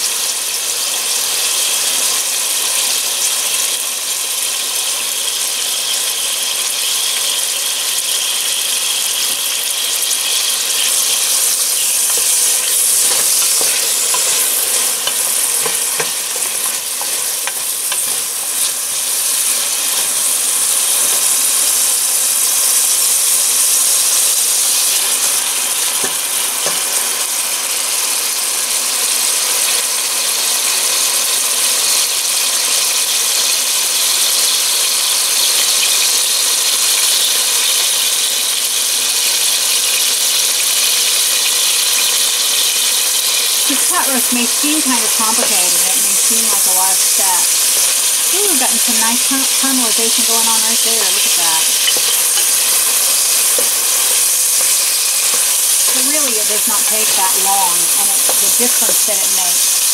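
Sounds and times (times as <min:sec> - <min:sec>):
vegetables sizzling in oil: 0:00.0 - 0:59.9
wooden spoon scraping a pot: 0:10.3 - 0:18.7, 0:50.8 - 0:58.6.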